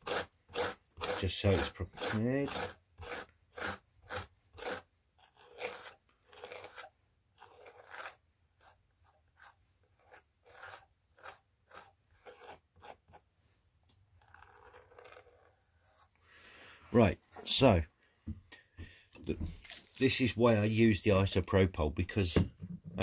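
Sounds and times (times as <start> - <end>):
fingers scraping grit: 0.0 - 13.3, 14.2 - 16.2.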